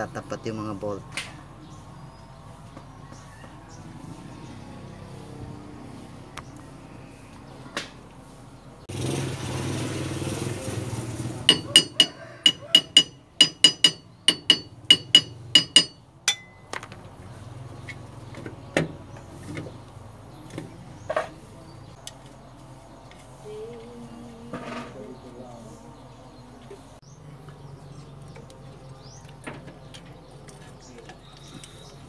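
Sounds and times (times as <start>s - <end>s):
scattered knocks: 11.5s - 16.4s
hammer striking metal: 11.5s - 16.7s.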